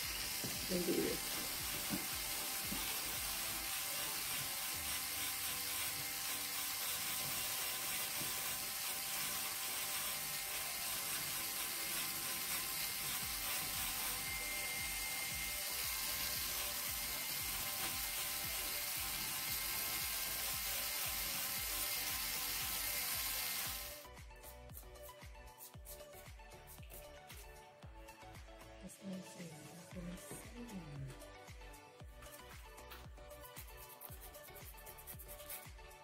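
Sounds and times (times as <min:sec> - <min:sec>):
electric nail drill grinding: 0:00.0 - 0:24.1.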